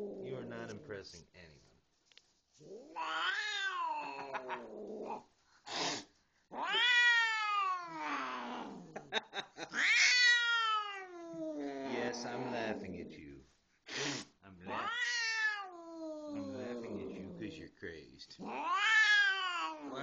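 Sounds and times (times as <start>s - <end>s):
cat yowling: 2.7s - 5.2s, 6.5s - 8.9s, 9.7s - 12.5s, 14.7s - 17.5s, 18.4s - 20.0s.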